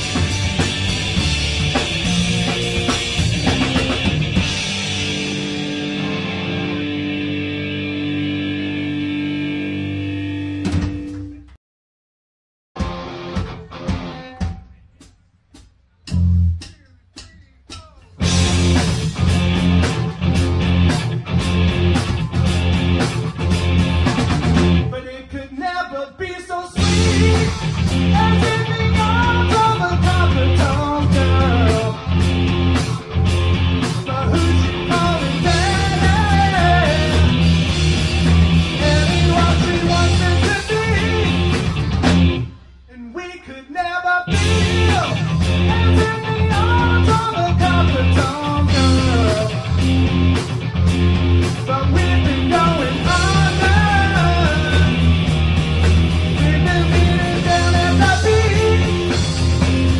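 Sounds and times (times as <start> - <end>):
heavy bass line: 0.0 - 11.1, 16.1 - 25.5, 26.8 - 43.3, 44.3 - 59.9
rock band playing live: 0.0 - 11.5, 12.8 - 15.2, 18.0 - 59.9
person singing: 24.9 - 32.1, 34.0 - 37.4, 38.8 - 41.6, 42.9 - 49.8, 51.6 - 55.1, 56.3 - 59.2.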